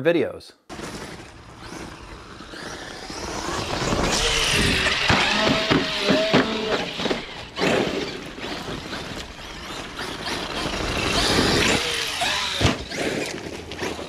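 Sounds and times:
electric motor whining: 0.7 - 14.0
tyres crunching gravel: 0.7 - 14.0.

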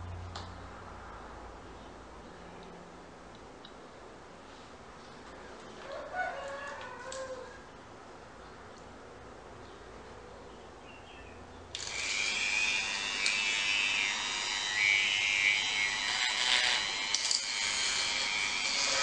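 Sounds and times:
rotary tool grinding whine: 11.8 - 19.0.

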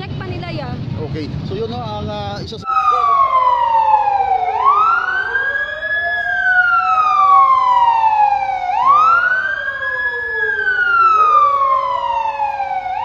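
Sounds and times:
faint lower siren: 2.6 - 13.0
siren wailing: 2.6 - 13.0.

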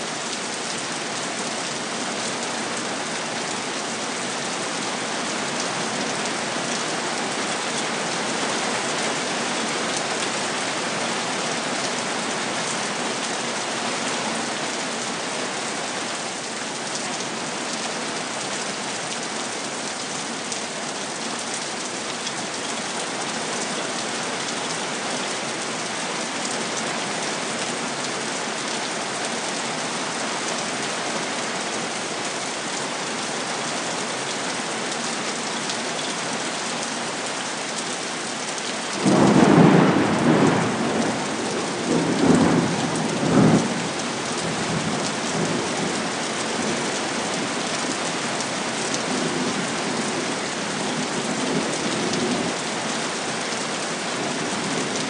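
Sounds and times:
heavy rain hissing: 39.0 - 47.5.

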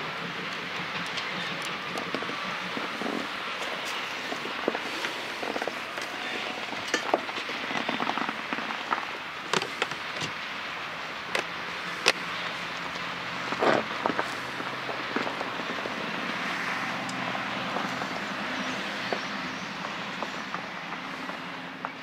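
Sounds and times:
freight wagons clanking: 0.0 - 10.5, 11.1 - 22.0
wheels hissing on rail: 0.0 - 22.0.

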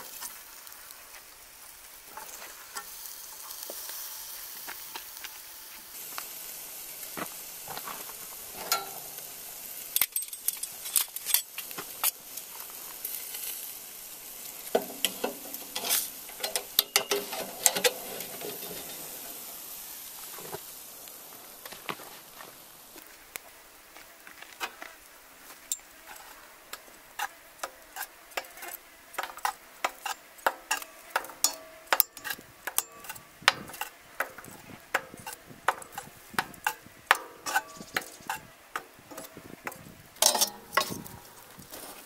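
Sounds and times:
metal tongs scraping in iron pot: 8.6 - 9.3, 9.9 - 12.5, 14.6 - 19.4, 25.7 - 41.4.

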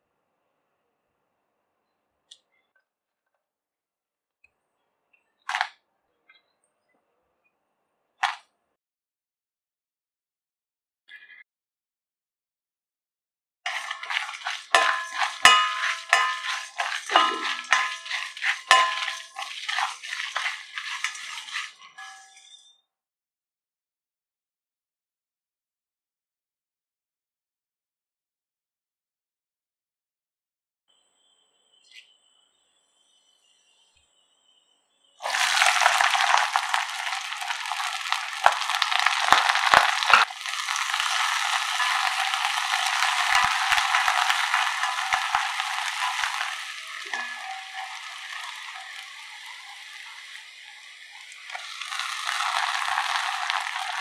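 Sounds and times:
seeds rattling in a metal pan: 13.7 - 22.4, 35.2 - 54.0
spatula knocking ringing pan: 13.7 - 22.4, 36.2 - 50.2
shallots sizzling in oil: 13.7 - 22.6, 35.2 - 54.0
wooden spatula scraping pan: 13.7 - 22.6, 35.2 - 54.0.

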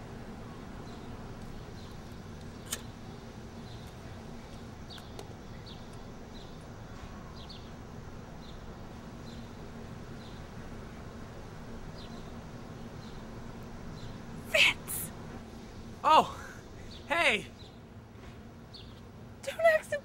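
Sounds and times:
small birds chirping: 0.2 - 20.0
sharp click: 2.6 - 2.9.

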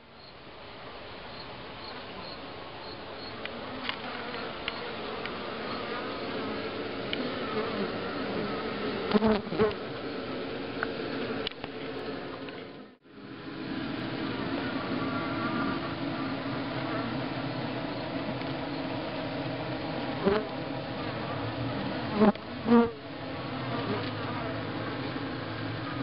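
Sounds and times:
bee swarm humming: 1.4 - 26.0.

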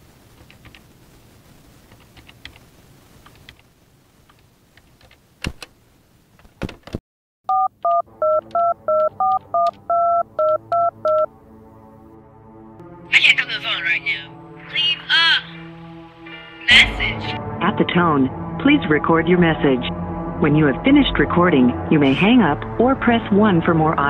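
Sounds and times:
touch-tone dialing beeps: 7.5 - 11.3.

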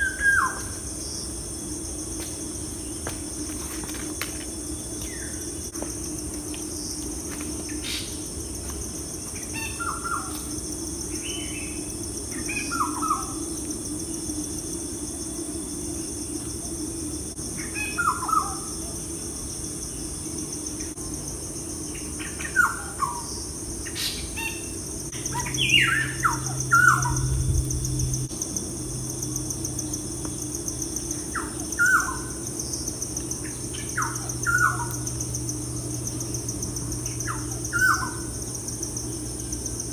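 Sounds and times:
insects droning: 0.0 - 39.9
low steady hum: 0.0 - 39.9.

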